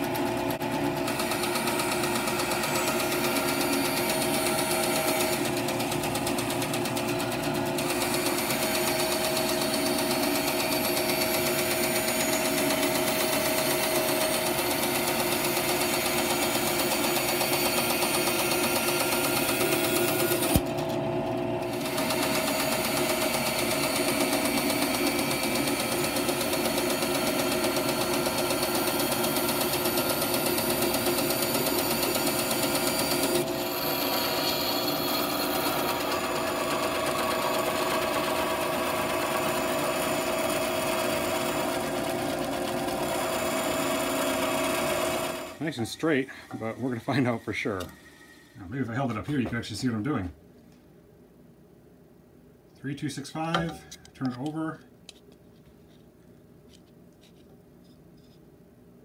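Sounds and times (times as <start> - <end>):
bandsaw cutting wood: 1.0 - 20.7, 21.6 - 48.0
sharp click: 53.5 - 55.2.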